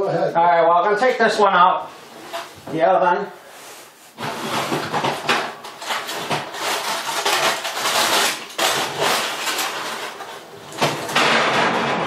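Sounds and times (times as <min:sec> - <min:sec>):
foil crinkling: 0:04.2 - 0:11.1.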